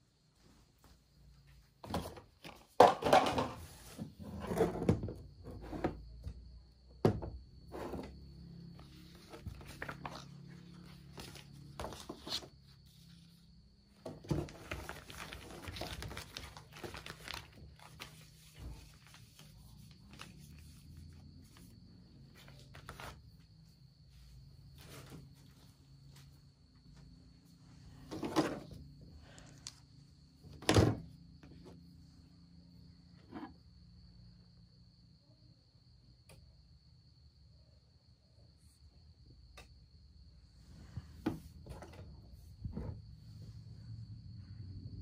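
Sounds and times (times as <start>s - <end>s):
plastic bottles set down on table: 1.8s - 3.6s
plastic packets rustling: 14.3s - 20.6s.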